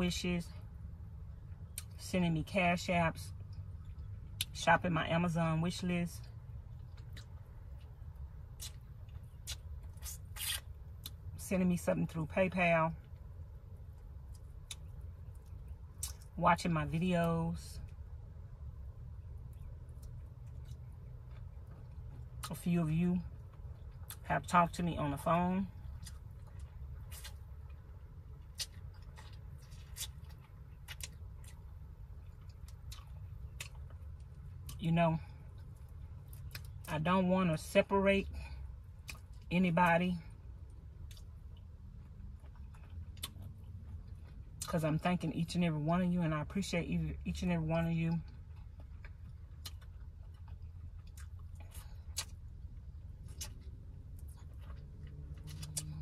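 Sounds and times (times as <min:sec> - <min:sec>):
low steady rumble: 0:00.0 - 0:56.0
steady low hum: 0:00.0 - 0:56.0
mouth smacks and chewing clicks: 0:06.8 - 0:11.2, 0:41.0 - 0:44.7, 0:53.2 - 0:56.0.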